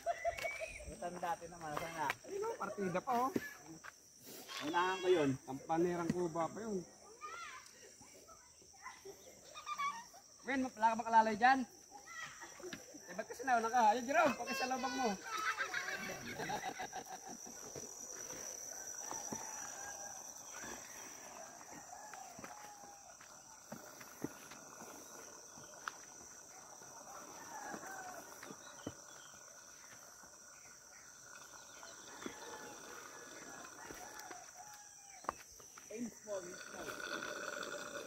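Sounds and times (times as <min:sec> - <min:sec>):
high-pitched insect drone: 0:00.0 - 0:38.0
footsteps on stone steps: 0:21.6 - 0:26.4, 0:27.6 - 0:29.1, 0:33.9 - 0:35.9.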